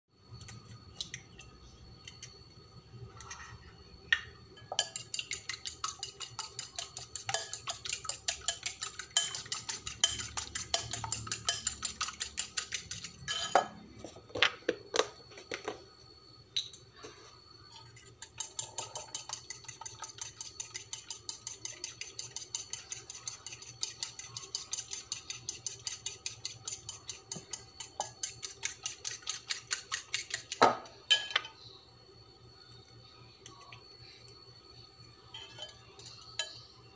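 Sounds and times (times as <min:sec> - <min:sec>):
fork beating eggs in a bowl: 0:04.6 - 0:13.5, 0:17.8 - 0:30.9.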